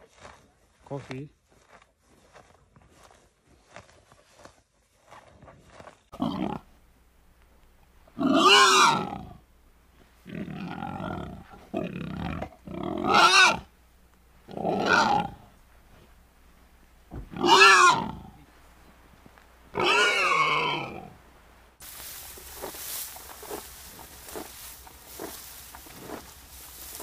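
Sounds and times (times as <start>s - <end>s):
warthog rasping and snuffling: 0.0s - 6.8s, 7.9s - 19.1s, 19.7s - 21.1s, 21.8s - 27.0s
warthog grunting calls: 6.2s - 6.7s, 8.1s - 9.4s, 10.2s - 13.7s, 14.4s - 15.6s, 17.1s - 18.5s, 19.7s - 21.2s.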